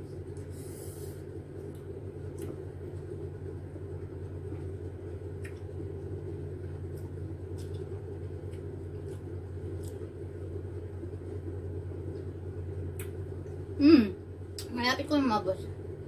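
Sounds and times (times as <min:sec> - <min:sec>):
steady low hum: 0:00.0 - 0:16.0
faint eating clicks: 0:05.3 - 0:10.2.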